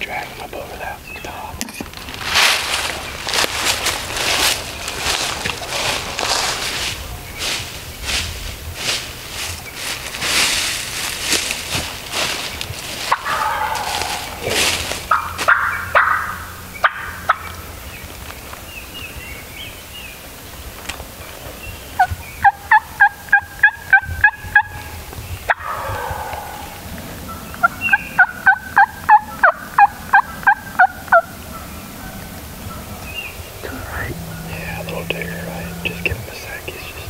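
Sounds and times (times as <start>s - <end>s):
soft turkey calling: 12.4s - 17.7s, 21.7s - 37.0s
turkey yelping: 13.0s - 17.6s, 22.0s - 24.9s, 25.5s - 34.7s.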